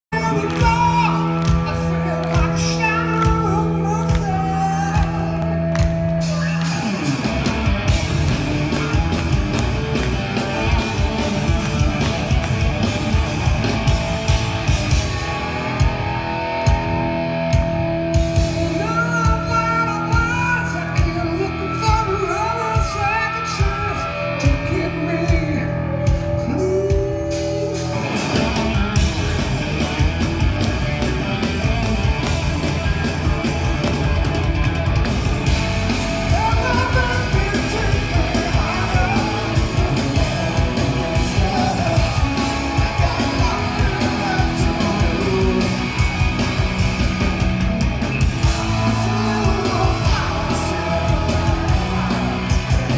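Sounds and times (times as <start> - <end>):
man singing lead vocal: 0.1 - 5.7, 18.4 - 28.0, 35.9 - 46.3, 48.1 - 52.9
live rock band: 0.1 - 52.9.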